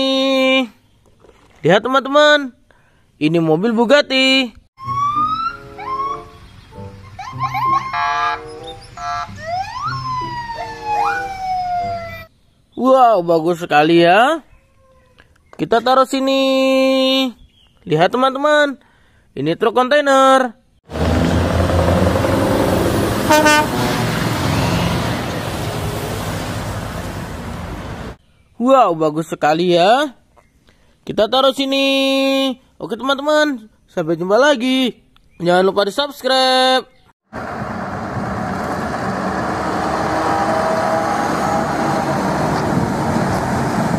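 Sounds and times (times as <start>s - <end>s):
road noise: 4.8s - 12.3s, 20.9s - 28.2s, 37.3s - 43.9s
truck horn toot: 7.8s - 9.4s, 21.0s - 26.3s
truck diesel engine running: 20.9s - 28.2s, 37.4s - 43.9s.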